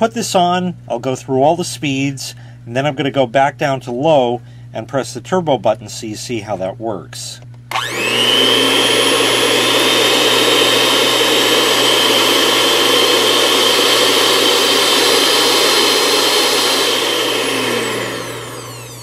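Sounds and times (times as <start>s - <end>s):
electric hand mixer whining: 7.7s - 19.0s.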